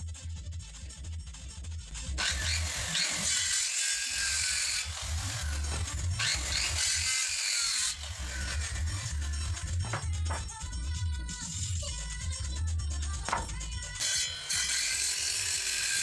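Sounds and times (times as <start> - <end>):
circular saw cutting wood: 2.2 - 10.4, 13.2 - 16.0.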